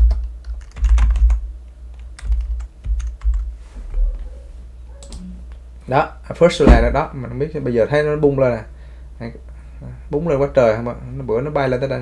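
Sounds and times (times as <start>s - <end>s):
computer keyboard typing: 0.0s - 3.5s.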